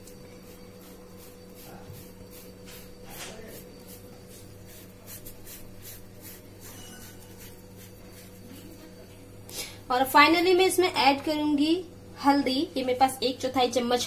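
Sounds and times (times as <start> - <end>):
potato scraping on metal grater: 4.6 - 8.5.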